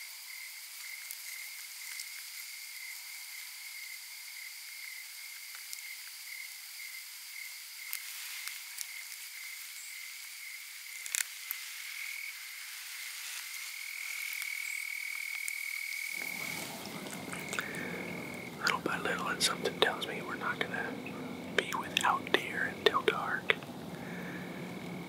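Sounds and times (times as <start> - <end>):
chorus of frogs or insects trilling: 0.1 - 25.0
low rustle: 16.2 - 25.0.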